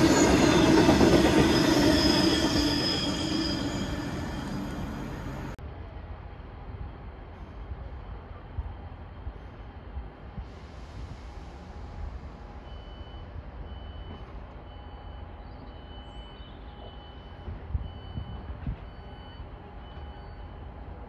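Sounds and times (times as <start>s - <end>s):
high electronic warning beeps: 0.0s - 5.6s.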